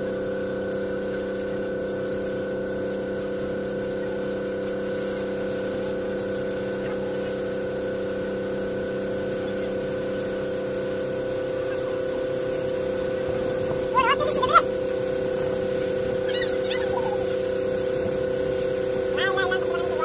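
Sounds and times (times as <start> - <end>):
boat engine droning: 0.0 - 20.0
person calling out: 13.9 - 14.7, 16.2 - 17.4, 19.1 - 20.0.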